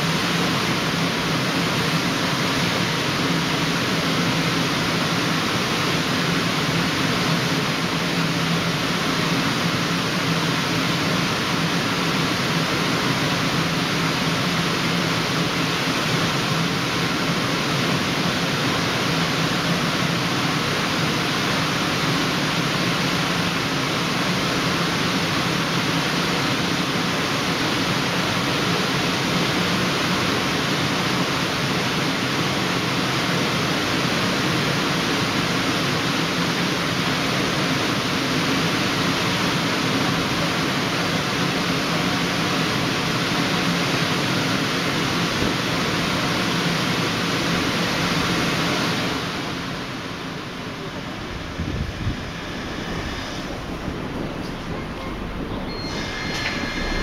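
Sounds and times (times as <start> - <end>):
low motor hum: 50.5 - 57.0.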